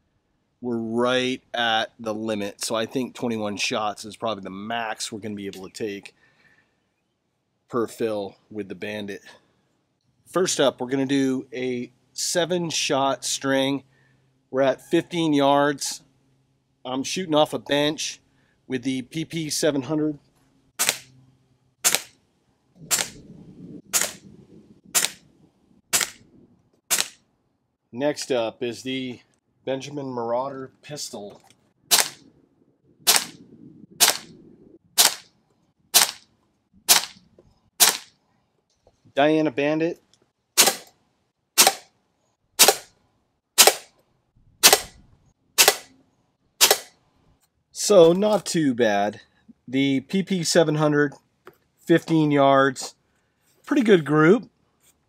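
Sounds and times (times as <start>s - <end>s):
air pistol shots: 20.8s - 21.1s, 21.8s - 22.2s, 22.9s - 23.2s, 23.9s - 24.3s, 24.9s - 25.2s, 25.9s - 26.2s, 26.9s - 27.2s, 31.9s - 32.2s, 33.1s - 33.4s, 34.0s - 34.4s, 35.0s - 35.3s, 35.9s - 36.2s, 36.9s - 37.2s, 37.8s - 38.1s, 40.6s - 40.9s, 41.6s - 41.9s, 42.6s - 42.9s, 43.6s - 43.9s, 44.6s - 45.0s, 45.6s - 45.9s, 46.6s - 47.0s.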